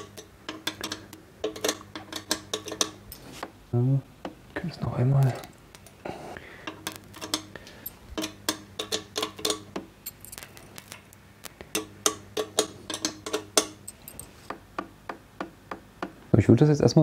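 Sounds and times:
hand tools clicking on screws: 6.7 - 14.3.

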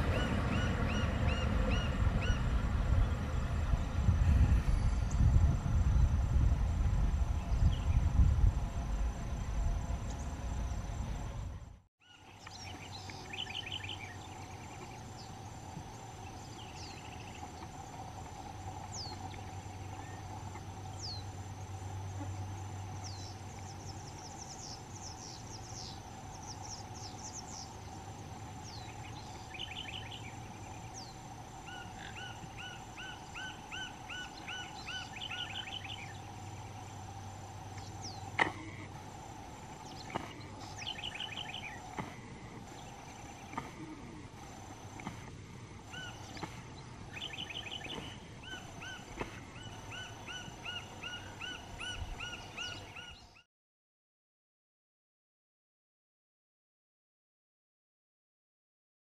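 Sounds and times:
birds trilled chirping: 0.0 - 3.2, 12.0 - 53.4
low hum: 0.0 - 53.3
insect drone: 0.0 - 53.4
birds whistling: 12.0 - 15.4, 28.6 - 36.7, 39.7 - 43.7, 45.8 - 53.4.

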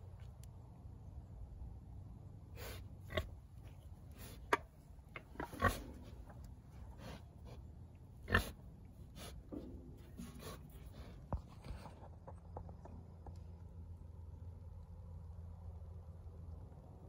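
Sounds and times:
faint low hum: 0.0 - 17.0
pig snorting and grunting: 2.6 - 11.2.

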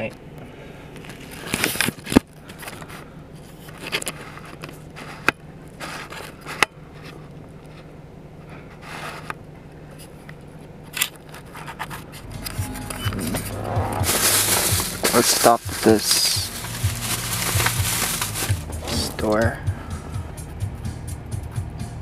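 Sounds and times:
handling noise scraping: 1.0 - 9.4, 10.0 - 19.6.

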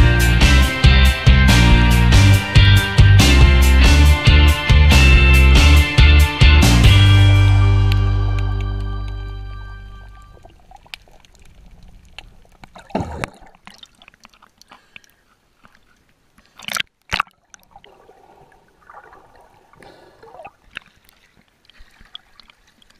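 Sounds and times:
sharp splashes: 6.8 - 15.2, 16.5 - 22.9
water sloshing and gurgling: 7.2 - 22.9.

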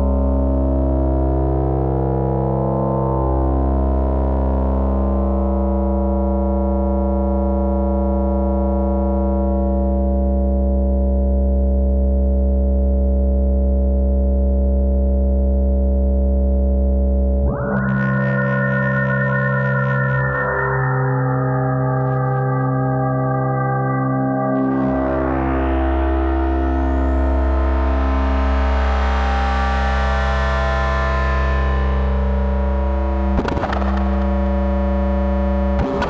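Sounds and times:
synthesizer drone: 17.3 - 36.0.

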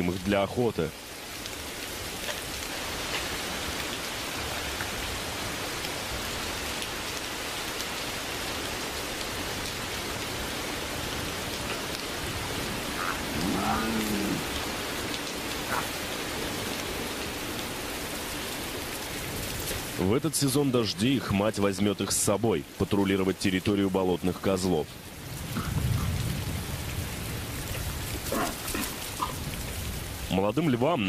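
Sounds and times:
steady rain falling: 0.0 - 31.0
animal call rising and falling: 12.9 - 14.6.

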